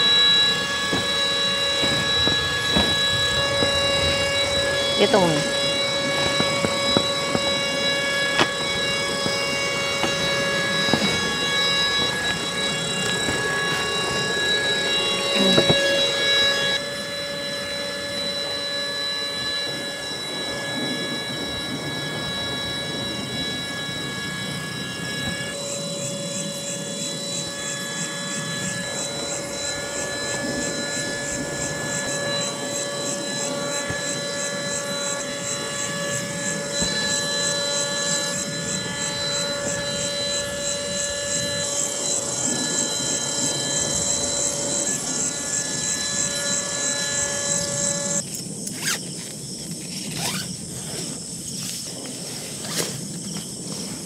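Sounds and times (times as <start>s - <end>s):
electric air pump whining: 0.0s - 54.0s.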